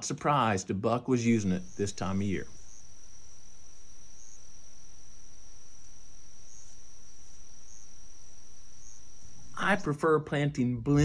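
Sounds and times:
crickets trilling: 1.2s - 9.9s.

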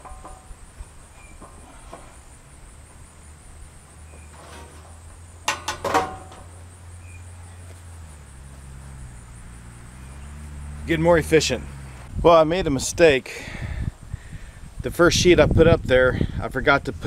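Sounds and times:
metal roofing sheet clattering: 0.0s - 3.0s, 3.7s - 6.7s.

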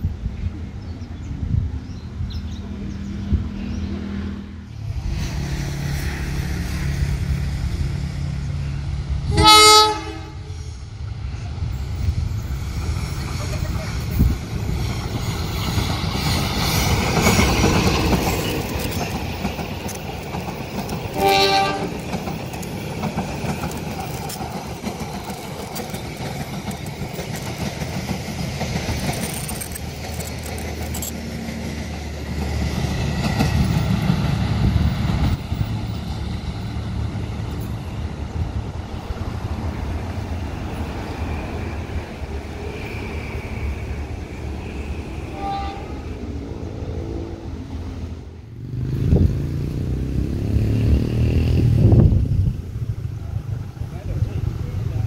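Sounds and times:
train wheels rumbling on rails: 0.0s - 55.0s
train horn blast: 9.3s - 10.5s, 21.1s - 22.0s, 44.7s - 46.3s.

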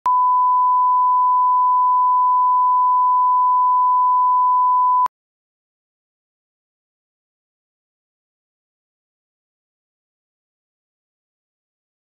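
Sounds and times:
steady test tone beep: 0.0s - 5.1s.

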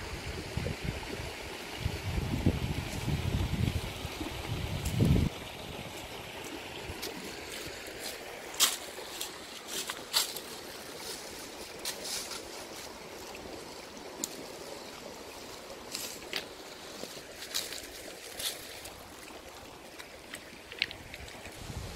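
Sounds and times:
rocky stream rushing: 1.1s - 21.9s
dry leaves and twigs crackling: 7.0s - 13.0s, 15.9s - 21.7s.

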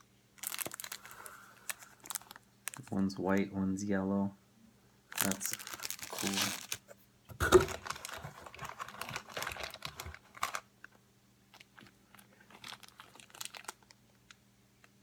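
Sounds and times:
plastic bag crinkling: 0.4s - 3.0s, 5.1s - 10.7s, 11.5s - 14.3s.

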